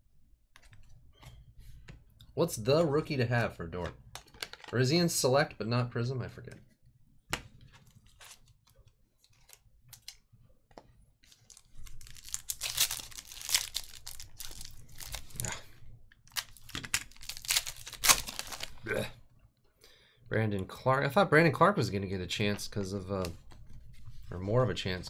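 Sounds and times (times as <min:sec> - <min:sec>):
foil wrapper crinkling and tearing: 0:11.2 - 0:15.5, 0:16.3 - 0:18.8.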